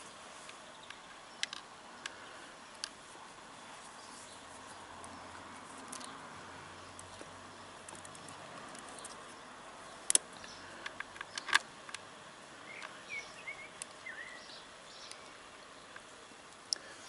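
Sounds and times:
faint bird chirps: 0:12.6 - 0:17.0.

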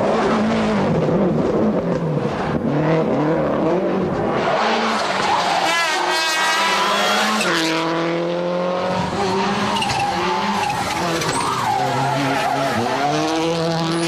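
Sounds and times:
rally car engine accelerating: 0:00.0 - 0:14.0.

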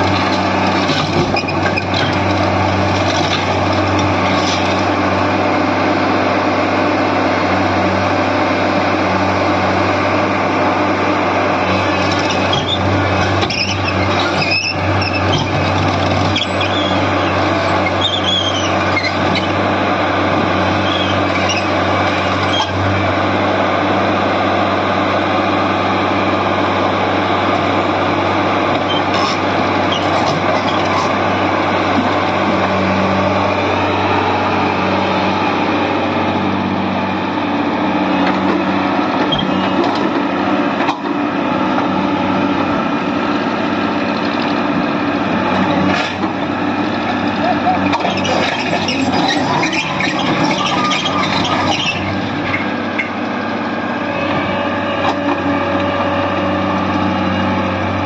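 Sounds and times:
excavator diesel engine running: 0:00.0 - 0:58.0
high squeals: 0:16.3 - 0:19.6, 0:20.8 - 0:22.8, 0:48.0 - 0:53.2.

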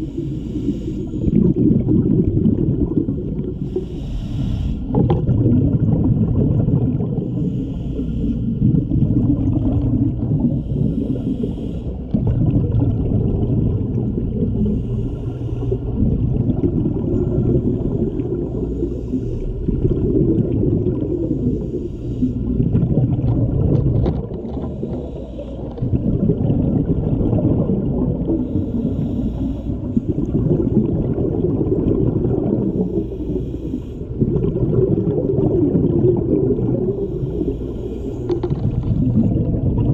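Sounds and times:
regulator hiss on inhale: 0:00.0 - 0:01.4, 0:03.6 - 0:05.0, 0:07.2 - 0:08.6, 0:10.4 - 0:12.2, 0:14.6 - 0:16.0, 0:17.6 - 0:19.7, 0:21.0 - 0:22.6, 0:24.5 - 0:25.8, 0:28.3 - 0:30.3, 0:32.6 - 0:34.2, 0:36.9 - 0:38.7
rumbling exhaust bubbles: 0:00.0 - 0:03.9, 0:04.8 - 0:07.5, 0:08.2 - 0:39.9.

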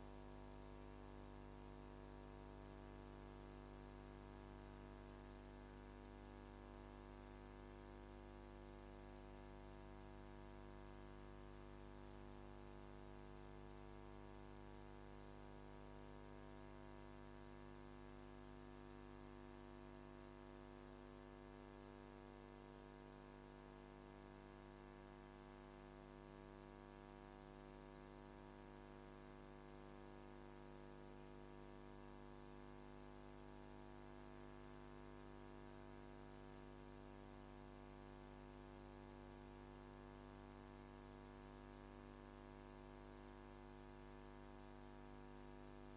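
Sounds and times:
faint steady hum with high whine: 0:00.0 - 0:45.9.

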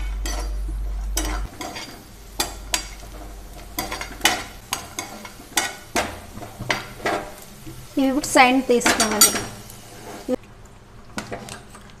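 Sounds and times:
low hum: 0:00.0 - 0:06.5
nuts sizzling in a frying pan: 0:00.0 - 0:10.4
spatula scraping and tapping pan: 0:01.2 - 0:07.9.

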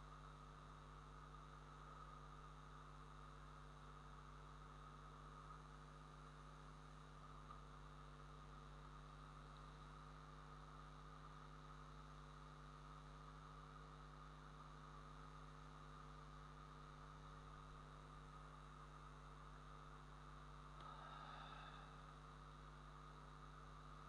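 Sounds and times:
faint hum: 0:00.0 - 0:24.0.

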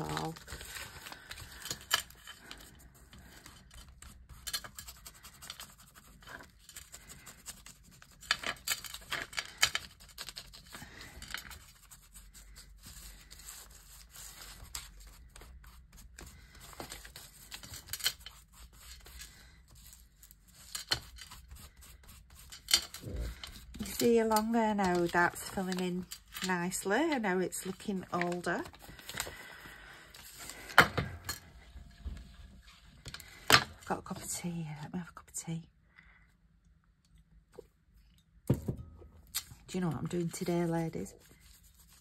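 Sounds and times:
paper rustling: 0:00.0 - 0:30.8, 0:40.0 - 0:42.0.

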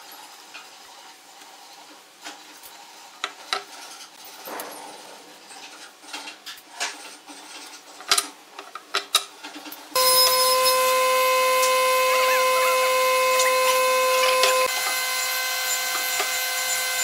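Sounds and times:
loud steady machine hum: 0:10.0 - 0:17.0.

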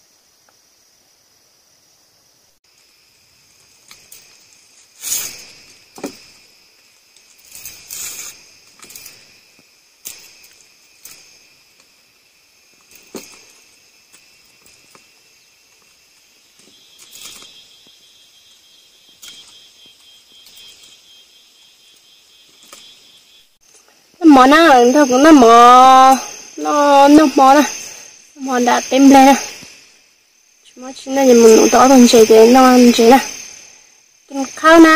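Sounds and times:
insects chirping: 0:00.0 - 0:34.9
bamboo skewers clicking and scraping: 0:03.6 - 0:12.0, 0:12.7 - 0:17.9, 0:19.1 - 0:21.0.

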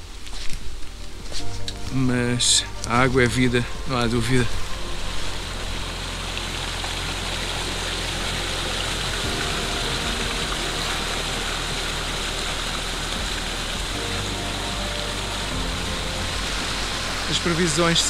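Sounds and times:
soft background music: 0:00.0 - 0:18.0
stream water rushing: 0:03.6 - 0:18.0.

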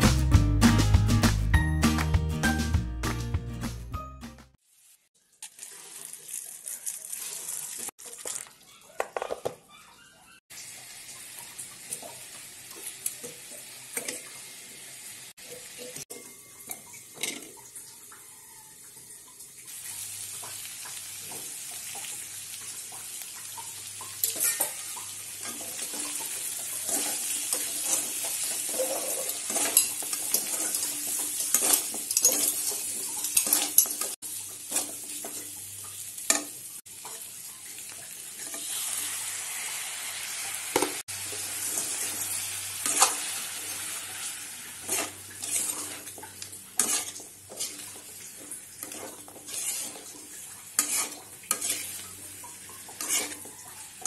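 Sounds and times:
chicken sizzling in a wok: 0:04.6 - 0:08.4, 0:10.5 - 0:54.0
metal spatula scraping a pan: 0:24.2 - 0:35.4, 0:41.6 - 0:54.0.

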